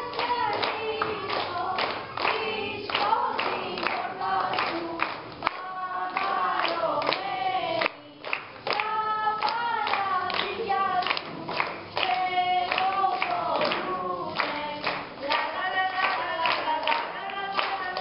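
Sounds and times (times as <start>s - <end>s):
children singing: 0.0s - 7.9s
children clapping: 0.0s - 18.0s.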